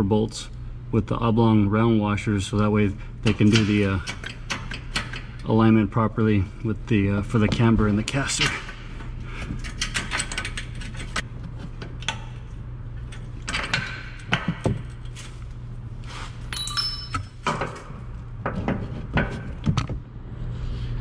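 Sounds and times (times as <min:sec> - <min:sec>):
steady low hum: 0:00.0 - 0:21.0
metal parts clinking and clanking: 0:08.1 - 0:15.5, 0:16.4 - 0:19.6
short metallic ring: 0:16.5 - 0:17.4.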